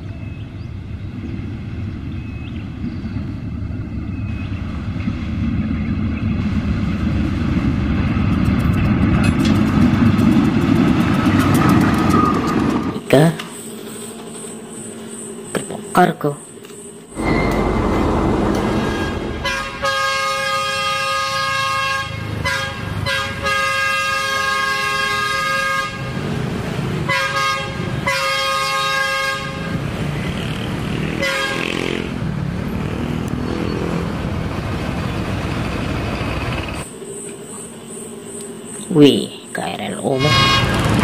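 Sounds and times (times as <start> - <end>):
locomotive engine running: 0.8 - 15.5, 17.1 - 37.0, 40.2 - 41.0
locomotive horn blasts: 17.2 - 26.3, 27.0 - 29.9, 31.2 - 32.1, 40.2 - 41.0.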